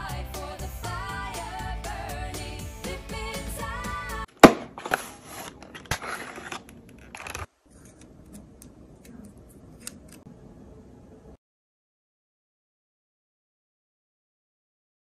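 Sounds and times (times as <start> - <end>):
pop music: 0.0 - 4.3
packaging scraping and crinkling: 4.8 - 8.0.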